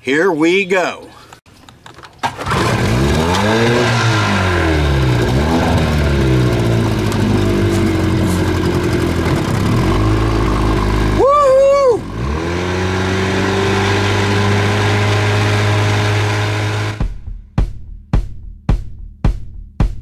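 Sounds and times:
outboard motor starting and revving: 2.2s - 17.0s.

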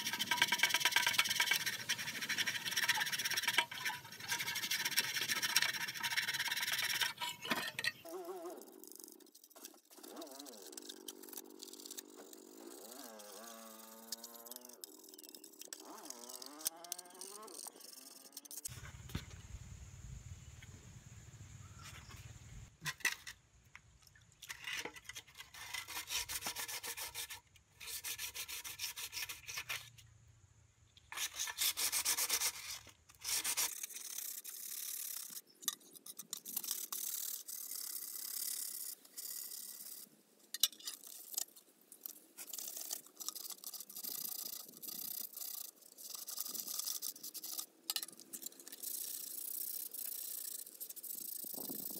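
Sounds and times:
toothbrush scrubbing metal: 0.0s - 18.7s.

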